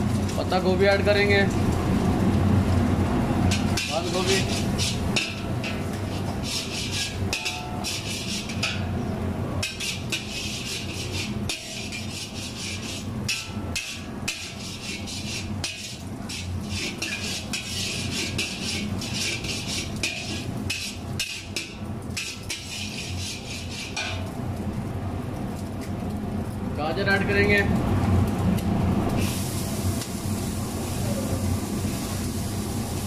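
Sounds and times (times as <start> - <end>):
cabbage sizzling in hot oil: 1.0 - 8.6, 29.1 - 33.0
metal spatula scraping a wok: 3.5 - 8.9, 9.6 - 24.4.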